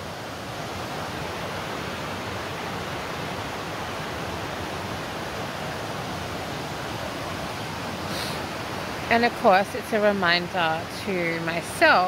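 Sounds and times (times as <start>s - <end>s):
steady rushing hiss: 0.0s - 12.0s.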